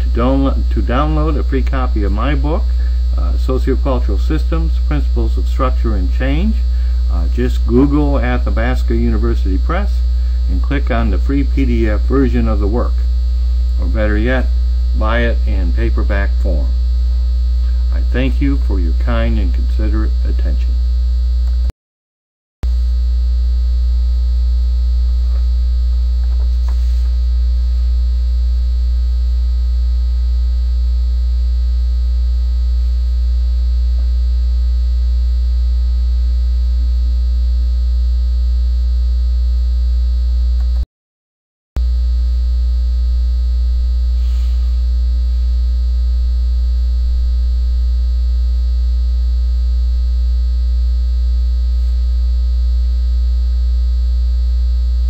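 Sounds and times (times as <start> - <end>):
low electrical hum: 0.0 - 21.7, 22.7 - 40.8, 41.8 - 55.0.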